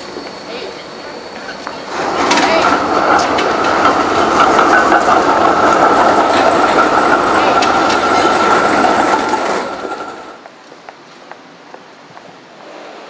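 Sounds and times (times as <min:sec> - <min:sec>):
tram rolling past: 0:00.0 - 0:13.0
wheels clicking on rails: 0:01.4 - 0:10.6.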